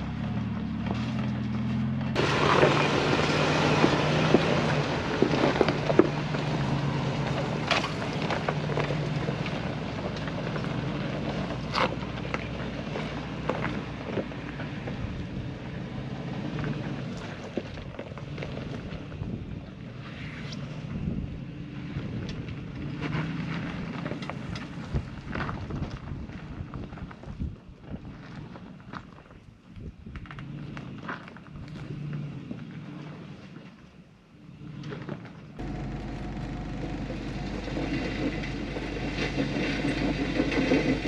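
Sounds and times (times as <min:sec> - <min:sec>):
engine running at low revs: 0:00.0 - 0:26.9, 0:29.9 - 0:41.0
tyres crunching over rocks: 0:00.2 - 0:15.1, 0:16.6 - 0:19.5.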